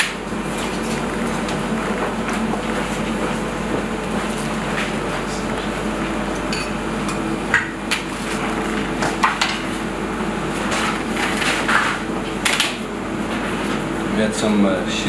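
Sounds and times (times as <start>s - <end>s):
steady background hum: 0.0s - 15.0s
bowls and utensils clinking: 6.5s - 7.2s.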